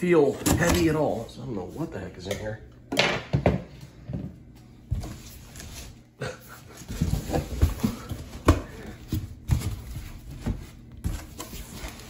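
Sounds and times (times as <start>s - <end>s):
packing paper rustling: 9.1s - 12.0s.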